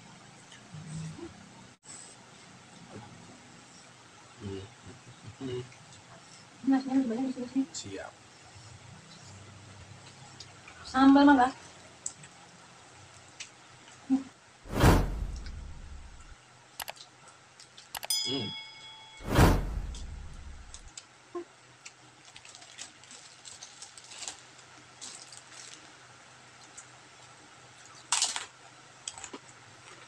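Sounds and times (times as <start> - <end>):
whoosh sound effect: 14.7 - 16.3, 19.2 - 20.9
eating by hand clicks and crunches: 16.8 - 18.1, 21.8 - 26.0, 26.6 - 30.0
short bell chime: 18.0 - 20.9.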